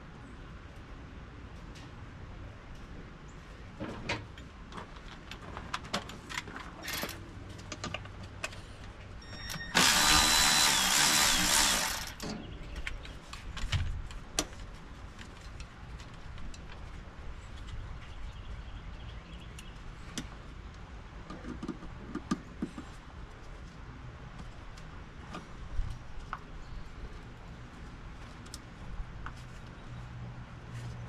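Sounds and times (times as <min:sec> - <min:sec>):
power tool whining: 0:09.3 - 0:12.2.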